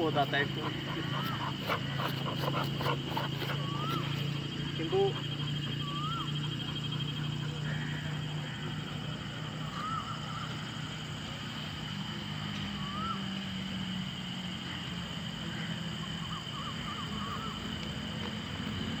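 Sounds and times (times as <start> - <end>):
bird chirps: 0.0 - 11.4, 12.4 - 13.4, 16.0 - 19.0.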